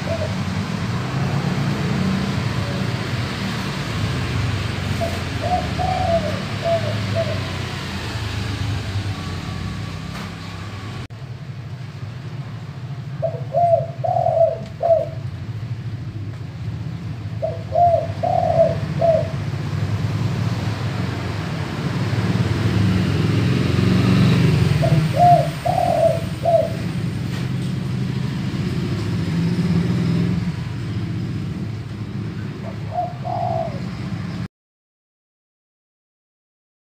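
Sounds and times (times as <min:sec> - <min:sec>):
dove cooing: 0:00.0 - 0:00.7, 0:04.9 - 0:07.8, 0:13.2 - 0:15.3, 0:17.4 - 0:19.5, 0:24.7 - 0:27.0, 0:32.4 - 0:34.3.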